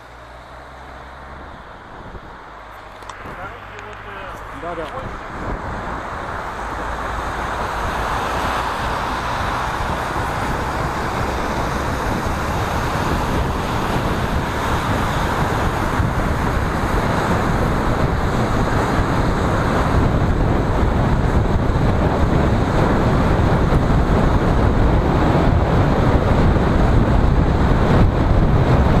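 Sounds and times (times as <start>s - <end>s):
tyres hissing on wet asphalt: 0.0s - 16.0s
low rumble of car: 0.0s - 29.0s.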